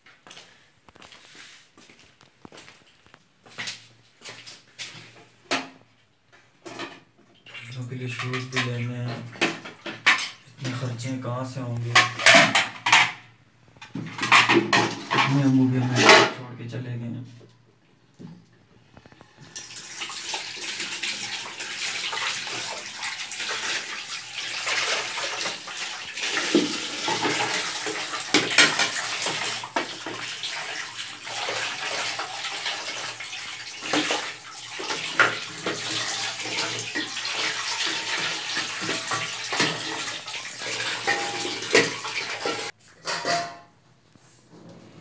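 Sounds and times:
tap water running into sink: 19.2s - 42.8s.

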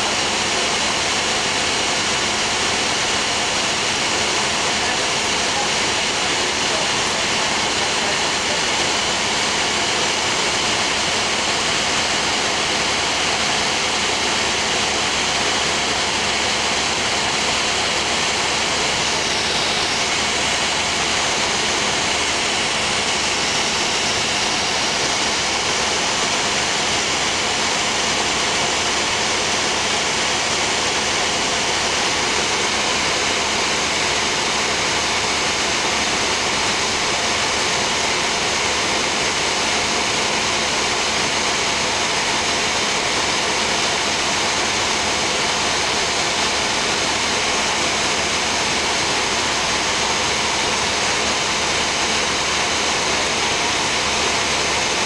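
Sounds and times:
aircraft cabin engine drone: 0.0s - 55.0s.

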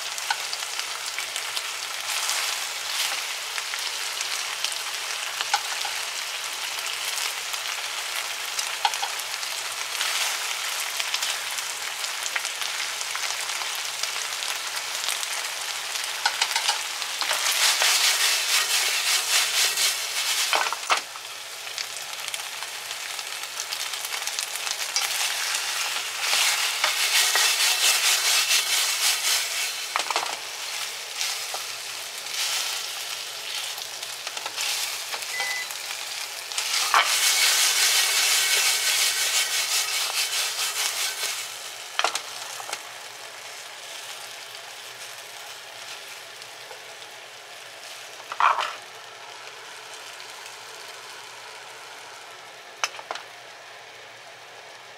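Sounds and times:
chicken wings sizzling in a pan: 0.0s - 54.9s.

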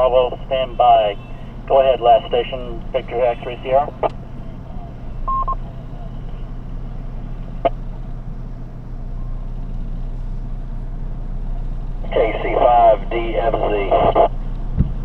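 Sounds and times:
vehicle idling hum: 0.0s - 15.0s
short electronic beep: 5.3s - 5.6s.

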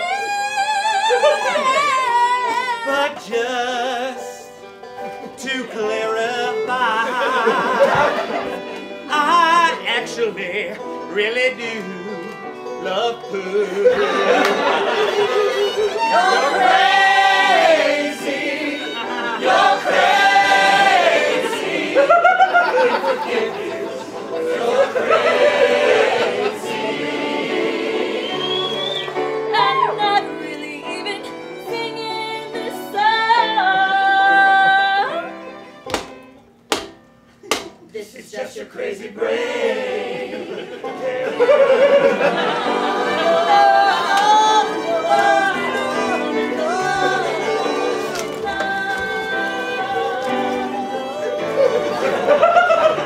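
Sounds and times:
choir singing: 5.6s - 10.1s, 12.9s - 31.8s, 38.2s - 53.0s.

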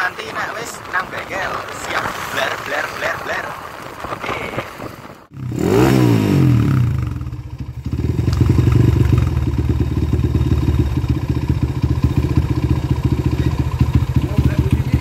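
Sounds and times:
motorcycle engine revving and idling: 5.3s - 15.0s.

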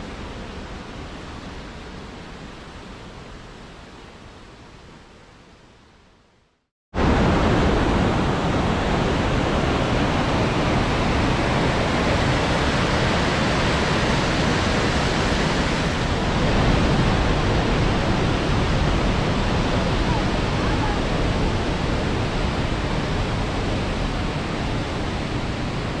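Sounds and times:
stream rushing over rocks: 7.0s - 26.0s.

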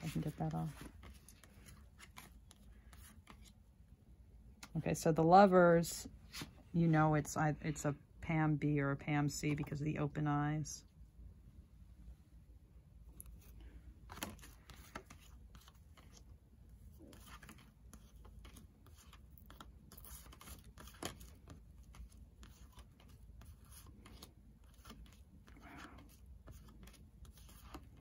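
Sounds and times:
cards being shuffled by hand: 0.0s - 3.7s, 13.1s - 28.0s.

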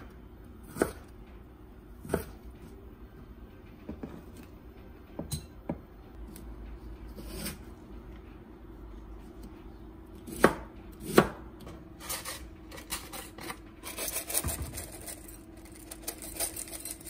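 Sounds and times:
knife chopping on wooden board: 10.2s - 11.4s.

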